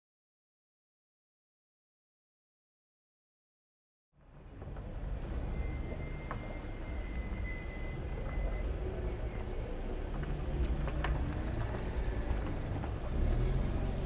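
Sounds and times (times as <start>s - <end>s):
low rumble of traffic: 4.2s - 14.0s.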